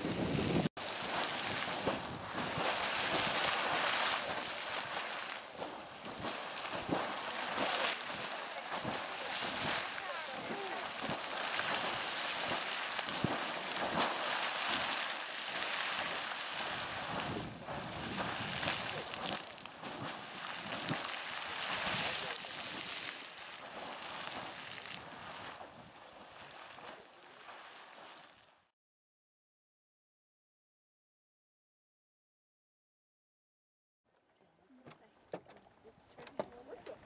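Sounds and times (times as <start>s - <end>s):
wind buffeting microphone: 0.0s - 15.0s, 16.0s - 22.3s
geyser water jetting and splashing: 0.0s - 28.6s.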